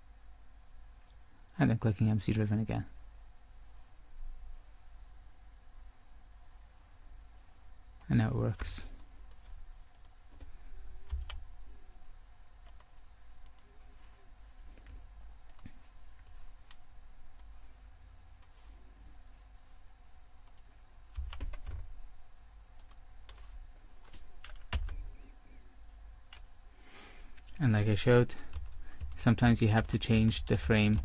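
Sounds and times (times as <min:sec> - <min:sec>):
keyboard and mouse clicks: 0:08.0 - 0:11.4, 0:12.6 - 0:13.7, 0:15.4 - 0:15.8, 0:20.4 - 0:21.8, 0:22.8 - 0:25.0.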